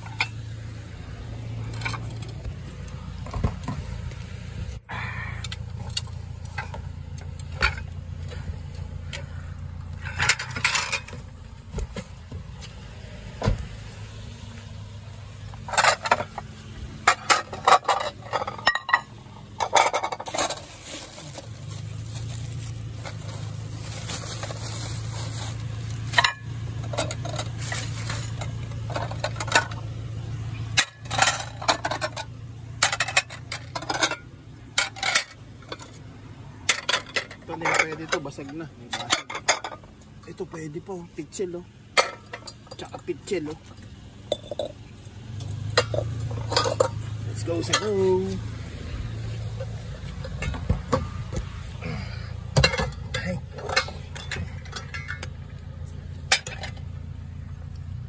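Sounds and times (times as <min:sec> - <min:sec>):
ceramic plates clinking: 0:17.1 - 0:20.6, 0:45.8 - 0:47.0.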